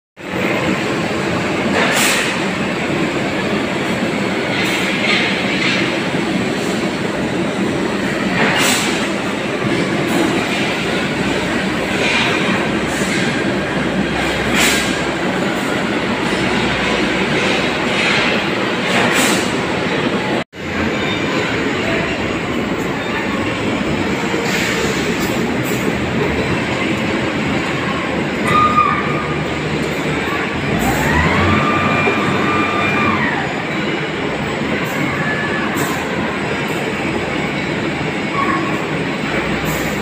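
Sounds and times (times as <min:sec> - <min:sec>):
diesel truck engine running: 0:29.3 - 0:33.6.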